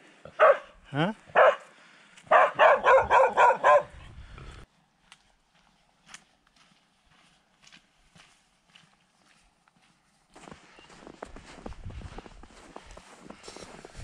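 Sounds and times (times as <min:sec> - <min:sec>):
dog barking: 0:00.3 - 0:01.7, 0:02.3 - 0:04.0
footsteps crunching in snow: 0:05.0 - 0:14.0.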